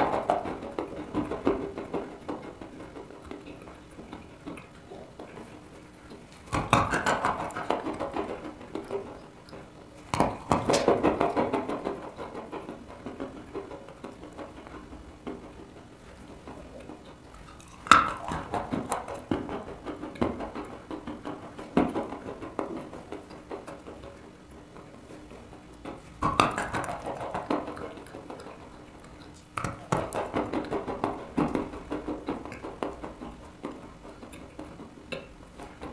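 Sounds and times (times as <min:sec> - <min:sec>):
crunchy chewing: 0:16.8 - 0:19.0.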